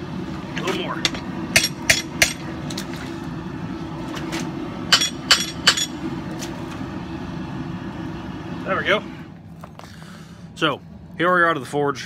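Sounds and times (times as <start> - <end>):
hammer striking steel: 1.1 - 2.4, 4.9 - 6.0.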